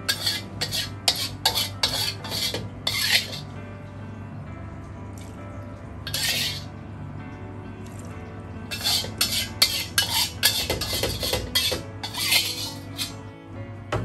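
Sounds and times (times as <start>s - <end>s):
metal spatula scraping a wok: 0.0s - 3.5s, 6.1s - 6.7s, 8.7s - 13.2s.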